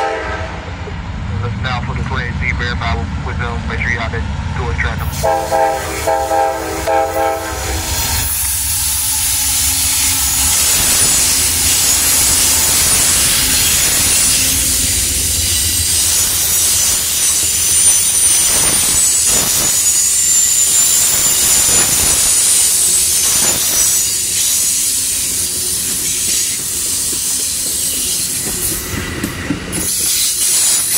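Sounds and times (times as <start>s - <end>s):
train horn chord: 0.0s - 0.7s, 5.2s - 8.0s
locomotive low rumble: 0.0s - 7.6s
wheel-on-rail squeal: 7.8s - 30.9s
clacks over rail joints: 25.8s - 30.9s.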